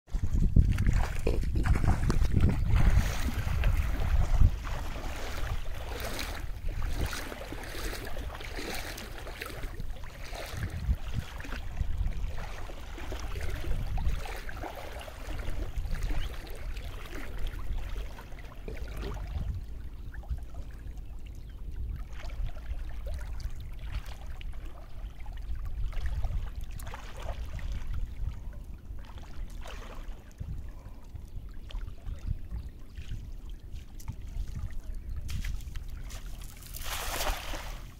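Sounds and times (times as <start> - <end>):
water splashing under wading steps: 0.1 - 37.9.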